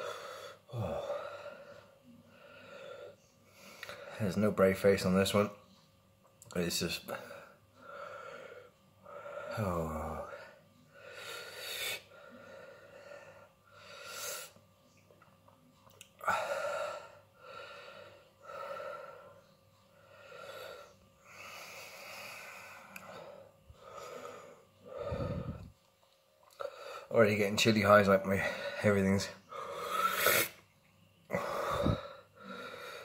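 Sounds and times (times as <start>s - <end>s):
man breathing hard through mouth: 20.1s - 25.8s, 31.3s - 33.0s.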